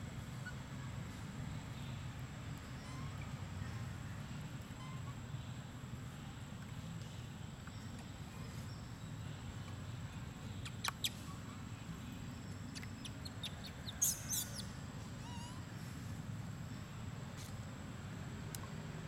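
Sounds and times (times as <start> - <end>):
low outdoor rumble: 0.0 - 19.0
small animal squeaky chirps: 0.4 - 0.6, 2.6 - 3.4, 4.8 - 5.2, 10.6 - 11.4, 12.6 - 15.8.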